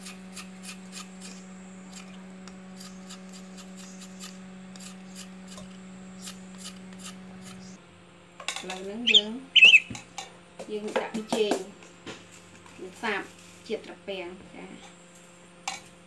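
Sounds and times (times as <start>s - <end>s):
peeler scraping vegetable: 0.0s - 7.8s
low electrical hum: 0.0s - 16.0s.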